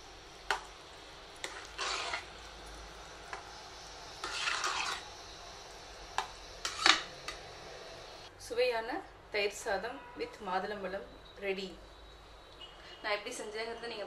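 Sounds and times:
spoon wet mixing rice: 4.2s - 5.0s.

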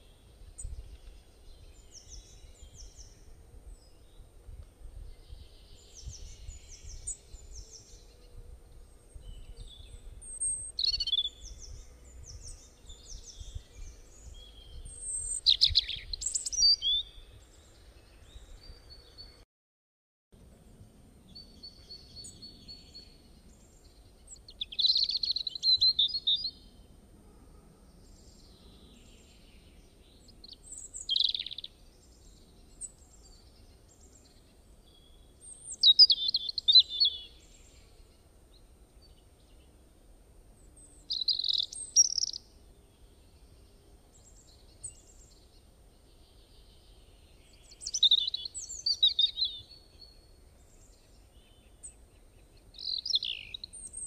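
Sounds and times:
bird twittering: 41.1s - 42.4s.

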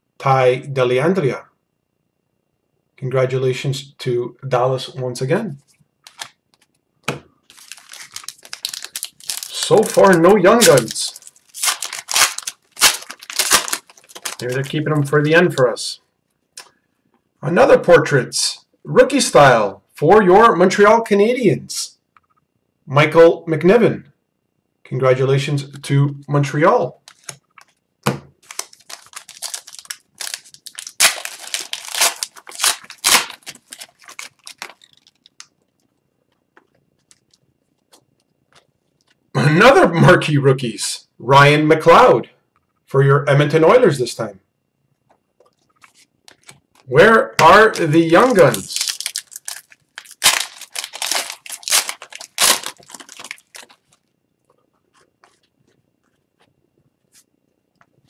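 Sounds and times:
wrapper tearing and crinkling: 6.0s - 6.4s, 7.4s - 15.1s, 27.0s - 27.8s, 28.4s - 35.8s, 45.8s - 54.1s.

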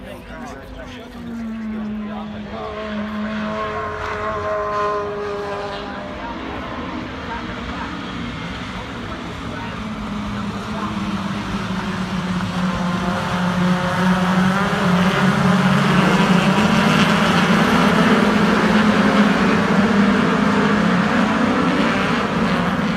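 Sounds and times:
racing car engines: 0.0s - 22.9s.

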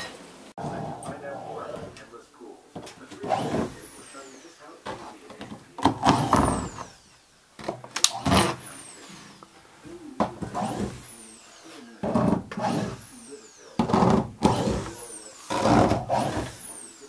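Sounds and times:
power tool whining in bursts: 3.0s - 5.2s, 5.8s - 9.4s, 10.4s - 17.0s.

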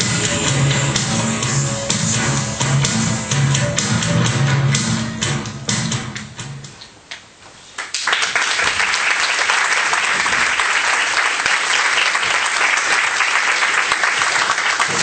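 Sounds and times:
music: 0.0s - 6.8s
audience applause: 7.8s - 15.0s.

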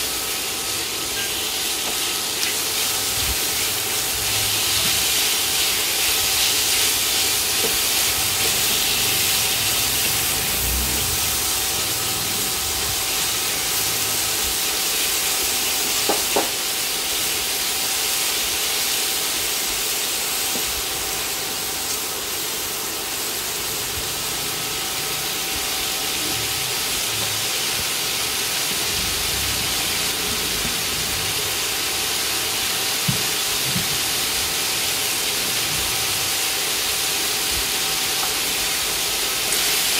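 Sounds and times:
food sizzling in a wok: 0.0s - 39.9s.

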